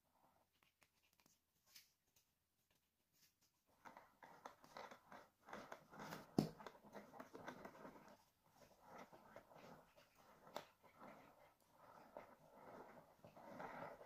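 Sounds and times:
spatula scraping frosting: 0:03.7 - 0:14.0.

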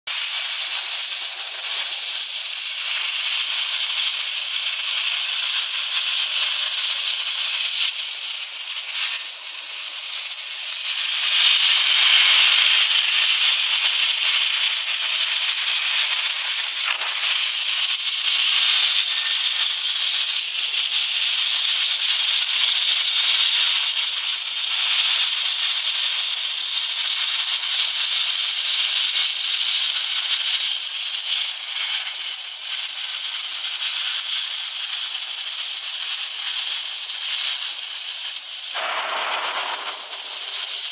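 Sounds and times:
plasma cutter hissing: 0:00.1 - 0:40.9.

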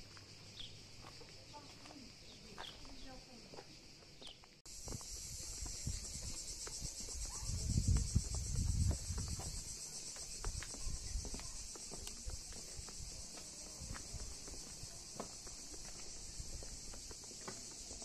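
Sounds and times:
insects chorus: 0:00.0 - 0:18.0.

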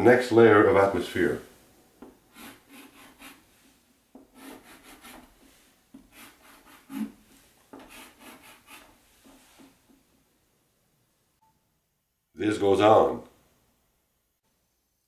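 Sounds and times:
chalk scratching on blackboard: 0:02.3 - 0:09.8.

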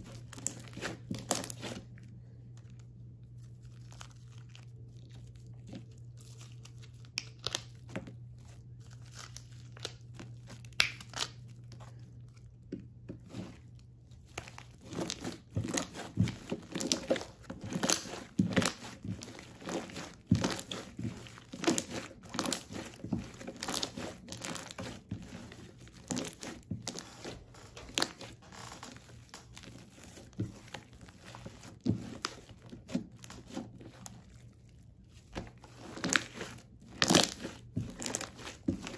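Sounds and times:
slime crackling and popping: 0:00.1 - 0:01.9, 0:09.0 - 0:11.8, 0:14.2 - 0:38.9.

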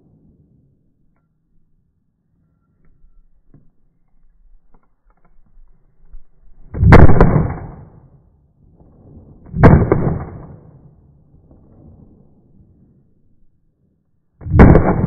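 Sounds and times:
pistol gunshots: 0:06.8 - 0:07.9, 0:09.5 - 0:10.7, 0:14.4 - 0:15.0.

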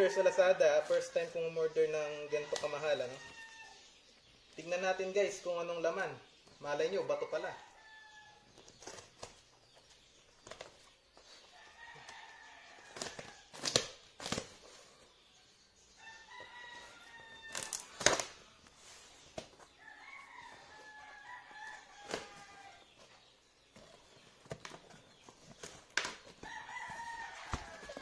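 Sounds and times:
rooster crowing: 0:02.2 - 0:03.8, 0:16.0 - 0:17.9, 0:19.8 - 0:22.8, 0:26.4 - 0:28.0.

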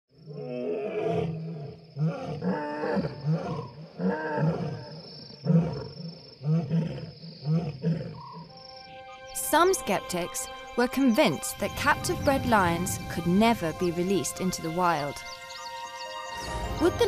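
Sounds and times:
lion roaring: 0:00.3 - 0:08.3.

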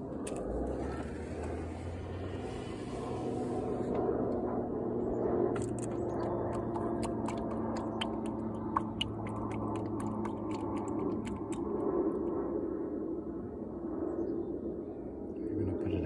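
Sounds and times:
steady low hum: 0:00.0 - 0:16.0
oil pouring clicks and crackles: 0:05.5 - 0:12.2.

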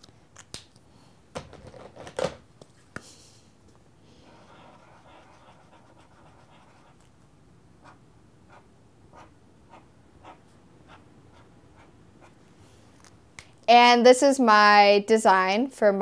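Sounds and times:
marker scratching on paper: 0:04.2 - 0:07.1, 0:07.8 - 0:12.4.

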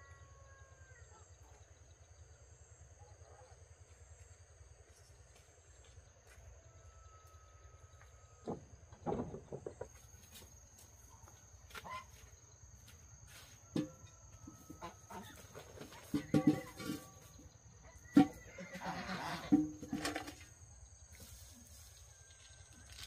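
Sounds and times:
chickens clucking: 0:13.7 - 0:20.2.

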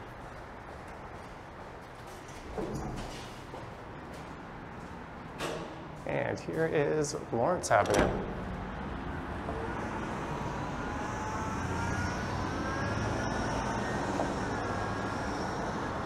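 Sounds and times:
road traffic passing: 0:00.0 - 0:16.0
engine whine rising in pitch: 0:08.4 - 0:16.0.

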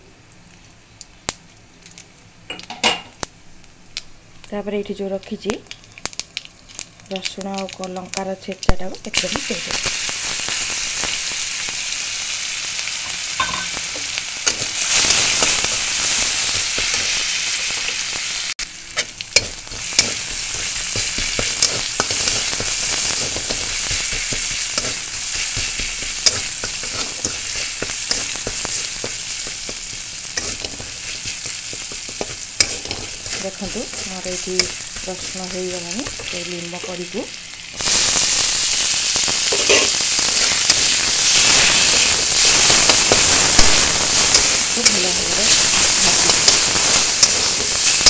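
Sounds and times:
garlic sizzling in hot oil: 0:00.5 - 0:48.0
spatula scraping metal pan: 0:30.3 - 0:35.4, 0:39.5 - 0:40.0.

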